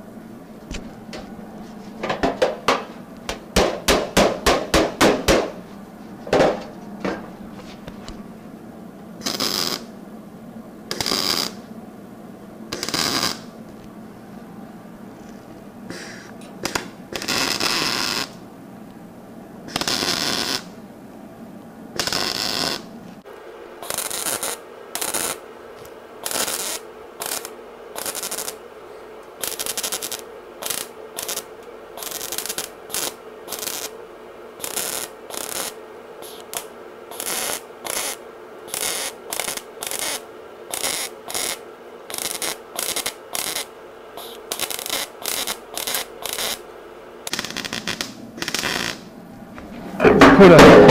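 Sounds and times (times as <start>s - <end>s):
steady hum: 0.0s - 50.9s
welding arc bursts: 9.2s - 9.9s, 10.9s - 11.6s, 12.7s - 13.5s, 16.0s - 18.4s, 19.7s - 20.7s, 22.0s - 22.8s, 23.8s - 25.4s, 26.2s - 28.6s, 29.4s - 34.0s, 34.6s - 46.7s, 47.3s - 49.1s.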